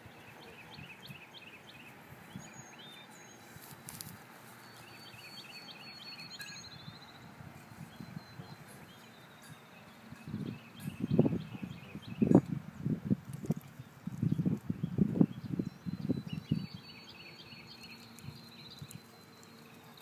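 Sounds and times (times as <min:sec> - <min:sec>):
small bird chirping: 0:00.1 - 0:20.0
footsteps in grass: 0:03.4 - 0:04.9.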